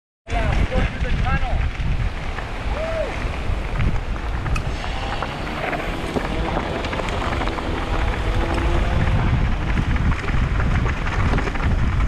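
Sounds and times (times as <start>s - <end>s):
wind buffeting microphone: 0.3s - 12.0s
tyres crunching on gravel: 1.5s - 11.8s
bike clicks and rattles: 3.2s - 12.0s.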